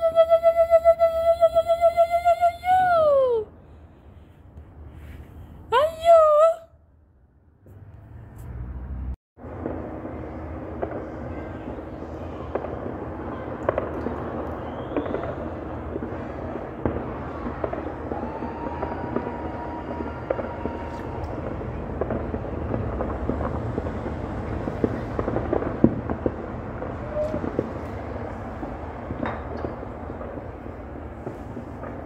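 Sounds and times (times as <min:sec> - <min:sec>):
distant fireworks crackling: 0:07.7 - 0:32.0
loud firework pops: 0:09.5 - 0:32.0.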